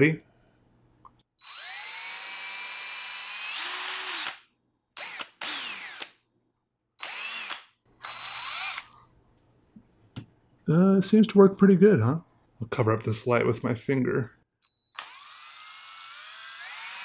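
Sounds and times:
cordless drill motor whining: 1.4s - 4.4s, 5.0s - 6.1s, 7.0s - 8.9s, 14.6s - 17.0s.

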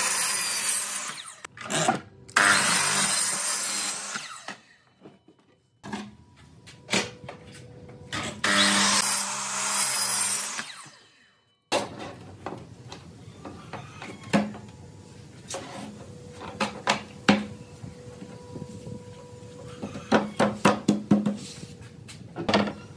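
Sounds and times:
miter saw cutting board: 0.0s - 4.8s, 8.2s - 11.2s.

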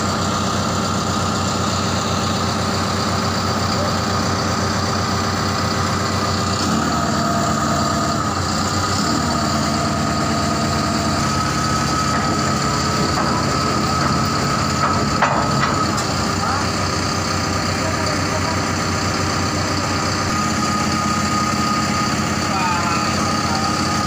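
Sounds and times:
diesel engine idling: 0.0s - 24.0s
high whine: 17.8s - 24.0s.

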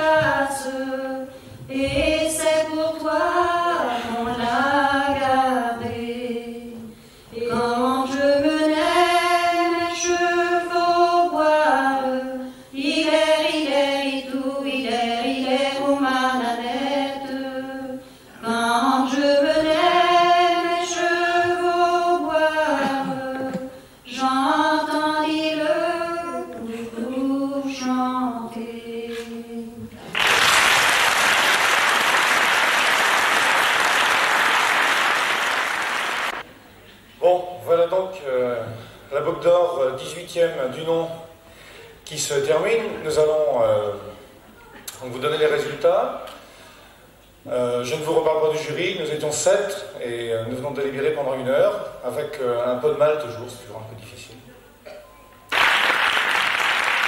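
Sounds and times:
person singing unaccompanied: 0.0s - 29.8s
audience applause: 30.0s - 36.4s, 55.5s - 57.0s.

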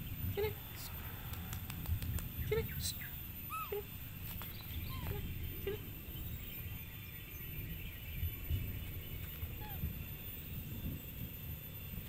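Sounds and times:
steady low rumble: 0.0s - 12.0s
short squeaking calls: 3.4s - 5.8s, 9.2s - 9.9s.

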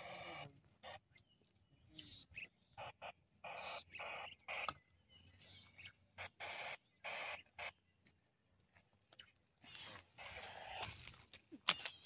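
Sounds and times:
hands scraping dry soil and grass: 8.8s - 12.0s.

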